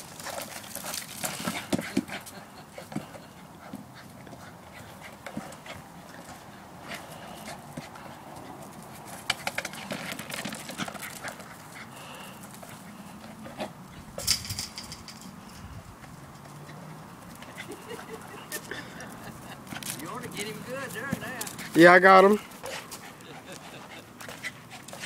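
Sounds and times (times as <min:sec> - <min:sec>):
dog sounds: 0:16.4 - 0:25.0.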